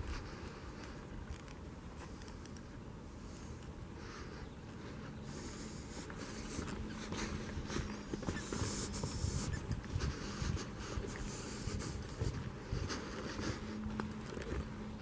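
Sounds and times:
footsteps on dirt trail with leaves: 0:04.3 - 0:15.0.

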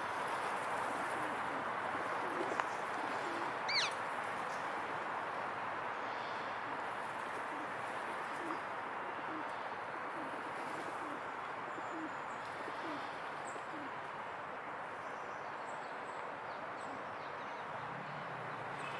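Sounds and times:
bird cooing: 0:01.0 - 0:04.0, 0:07.4 - 0:14.0.

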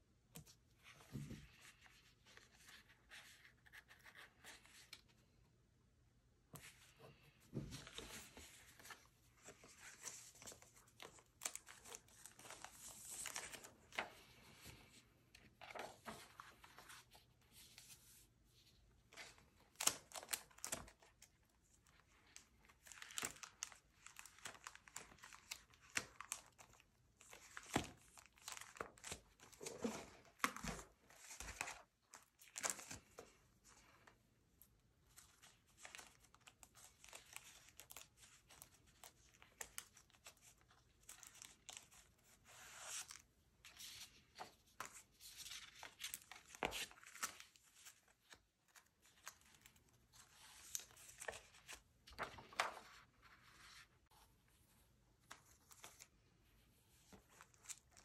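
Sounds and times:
plastic sleeves crinkling: 0:35.1 - 0:54.1.

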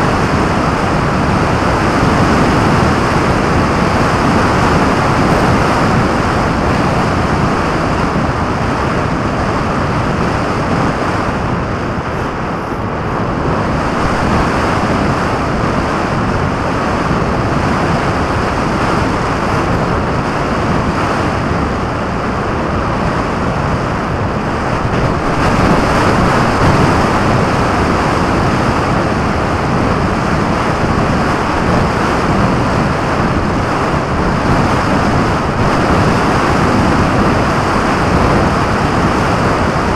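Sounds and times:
wind roaring over microphone: 0:00.0 - 0:39.9.

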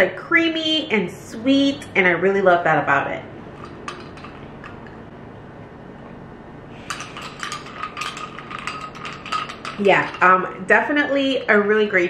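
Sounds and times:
ice cubes clinking in a glass: 0:06.8 - 0:10.4.

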